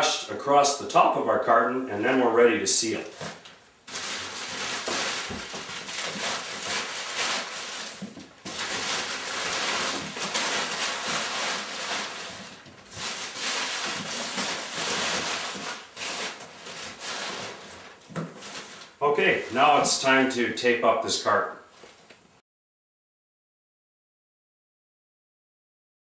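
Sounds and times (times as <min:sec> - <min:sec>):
paper rustling and crackling: 0:03.0 - 0:20.2.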